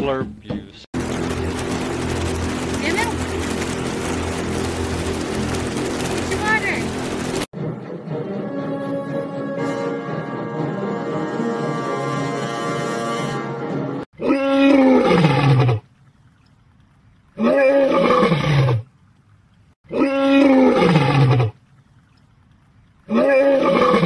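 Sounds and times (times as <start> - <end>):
music: 7.6 - 14.0
lion roaring: 14.2 - 15.8, 19.9 - 21.6, 23.1 - 24.0.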